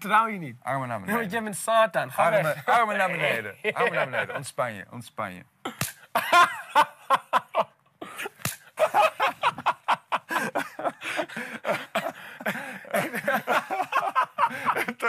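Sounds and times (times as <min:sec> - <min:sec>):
men laughing and exclaiming: 0:02.2 - 0:04.6, 0:06.0 - 0:07.8, 0:08.5 - 0:15.0.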